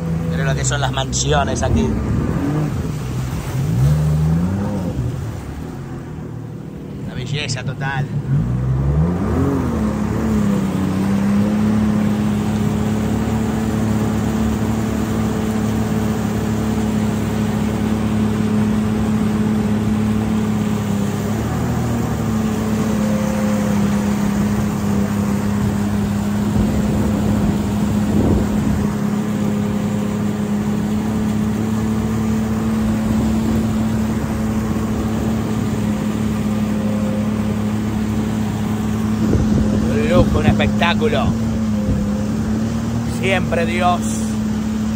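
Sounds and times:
jet ski engine running: 0:00.0 - 0:44.9.

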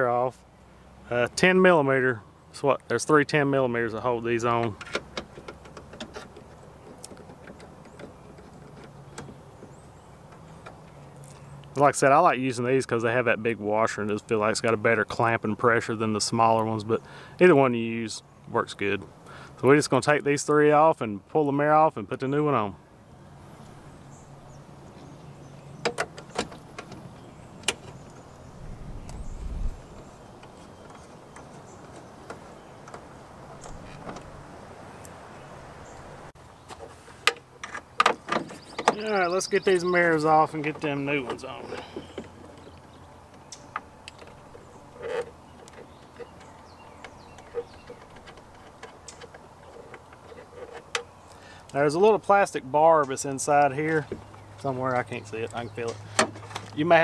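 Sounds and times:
low steady hum: 0:26.6 - 0:31.9.

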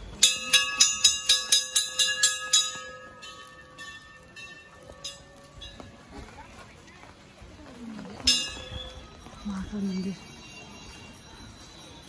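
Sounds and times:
brass temple bells ringing: 0:00.0 - 0:06.0.

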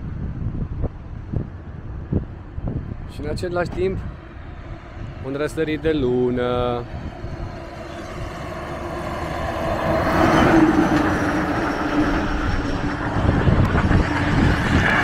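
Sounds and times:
road noise: 0:00.0 - 0:15.0
heavy lorry passing: 0:03.9 - 0:15.0.

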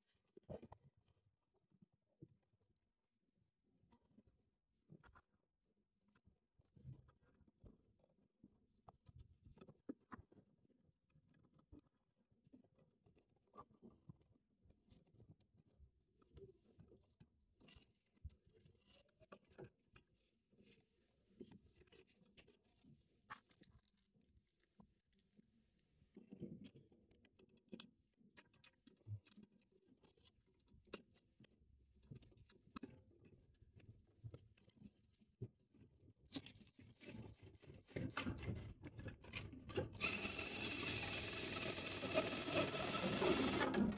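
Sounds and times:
small clicks and rustles of handling: 0:00.0 - 0:40.2.

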